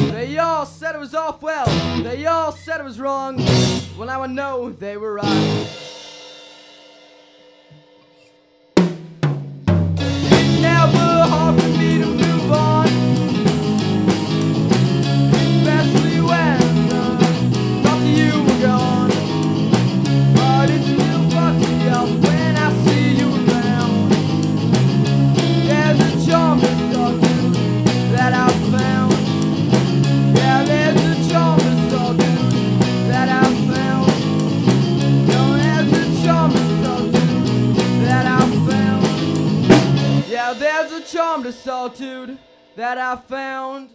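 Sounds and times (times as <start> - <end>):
drum kit: 0.0 - 0.8, 1.6 - 2.5, 3.3 - 4.4, 5.1 - 43.4
bass guitar: 0.0 - 1.0, 1.6 - 6.0, 9.5 - 40.7
rhythm electric guitar: 0.0 - 6.0, 9.2 - 43.8
lead guitar solo with bent notes: 1.6 - 2.8, 3.4 - 5.8, 10.0 - 40.6.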